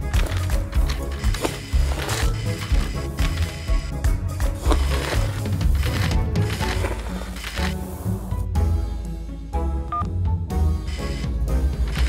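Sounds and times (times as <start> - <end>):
music with heavy bass beat: 0.0 - 6.3.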